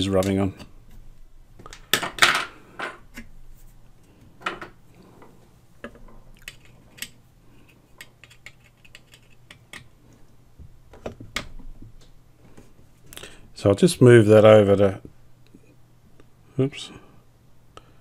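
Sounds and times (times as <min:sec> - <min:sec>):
screwdriver clicks and scrapes on metal: 0:08.0 - 0:09.9.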